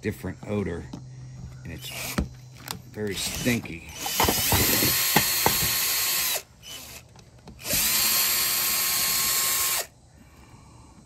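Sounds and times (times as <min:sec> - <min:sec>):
cordless drill whining: 0:01.8 - 0:09.9.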